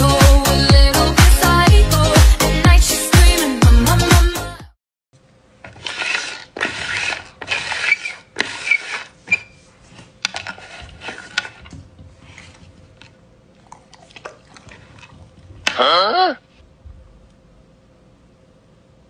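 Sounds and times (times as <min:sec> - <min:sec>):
dance music: 0:00.0 - 0:04.7
plastic lids scraping on tabletop: 0:05.6 - 0:12.7.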